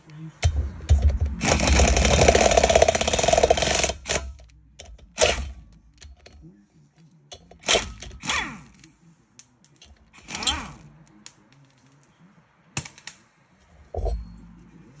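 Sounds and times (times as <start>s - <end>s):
air impact wrench bursts: 1.4s - 4.3s.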